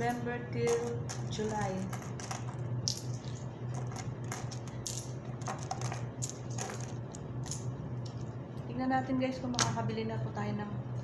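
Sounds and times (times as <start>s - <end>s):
coins clinking: 0.0s - 7.7s.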